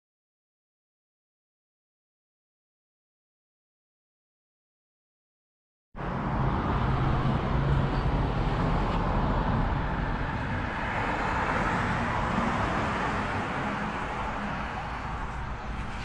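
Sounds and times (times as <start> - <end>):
street traffic rumble: 6.0 - 16.0.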